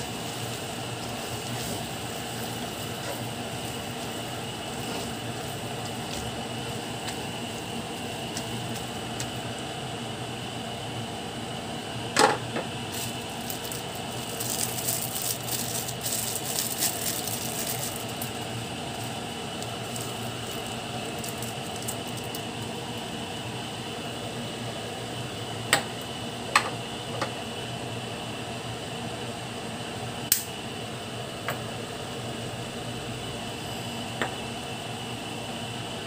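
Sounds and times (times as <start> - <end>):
faint crackling sizzle: 0.0 - 11.9, 12.7 - 26.3
steady hum: 0.0 - 36.0.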